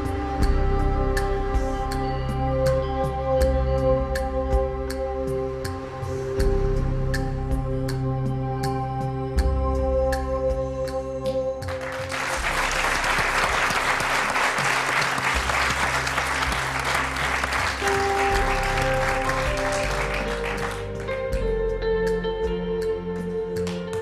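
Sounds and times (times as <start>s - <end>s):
soft instrumental music: 0.0s - 24.0s
audience applauding: 11.6s - 21.4s.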